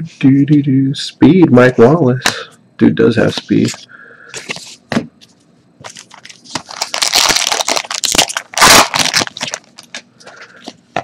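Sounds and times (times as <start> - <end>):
foil pack crinkling and tearing: 5.9 - 10.0.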